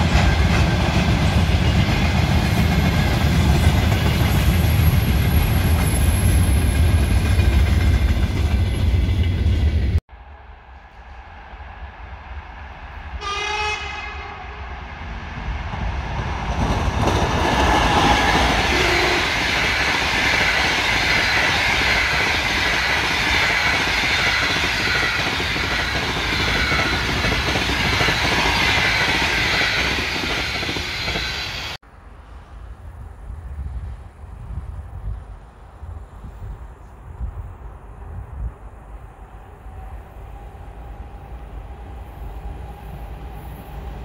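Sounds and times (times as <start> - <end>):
train wheels rushing on rail: 0.0 - 44.0
train horn blast: 13.2 - 14.7, 18.6 - 19.3.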